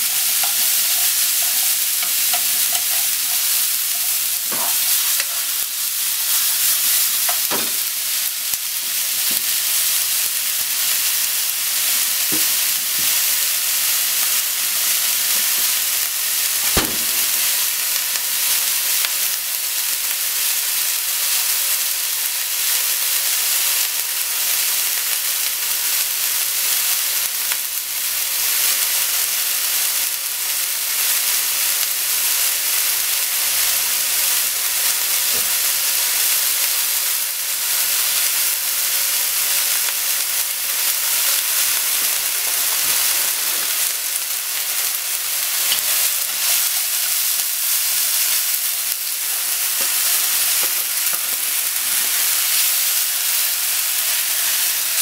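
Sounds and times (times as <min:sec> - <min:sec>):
vegetables sizzling in frying pan: 0:00.0 - 0:55.0
sharp knocks: 0:16.7 - 0:17.4.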